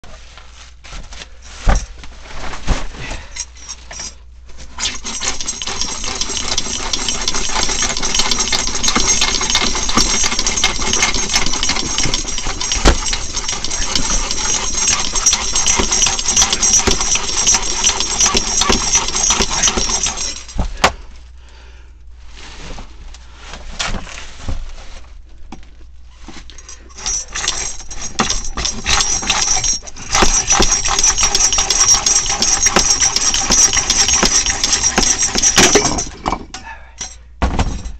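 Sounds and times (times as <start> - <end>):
handling clatter and knocks: 0.8 - 21.0, 25.5 - 37.9
reciprocating saw cutting pipe: 4.8 - 20.4, 26.9 - 36.2.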